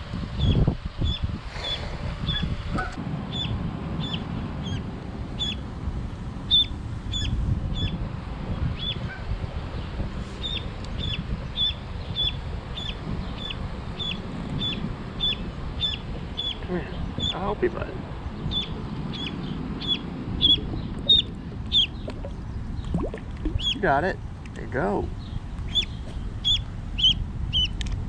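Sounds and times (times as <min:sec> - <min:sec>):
duckling peeping: 0:00.4 - 0:04.8, 0:05.4 - 0:05.6, 0:06.5 - 0:09.2, 0:10.4 - 0:17.5, 0:18.4 - 0:24.0, 0:25.6 - 0:27.8.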